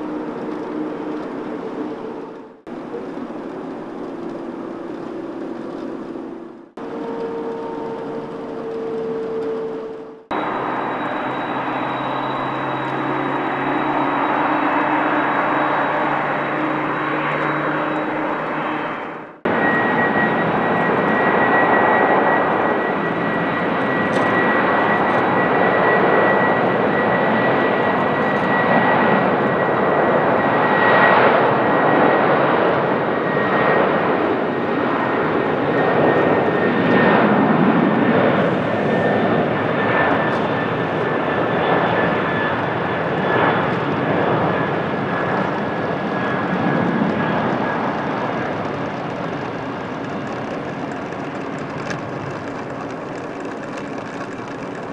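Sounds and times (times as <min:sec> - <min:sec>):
jet engines roaring: 0:00.0 - 0:54.9
thin high whine: 0:04.1 - 0:31.3.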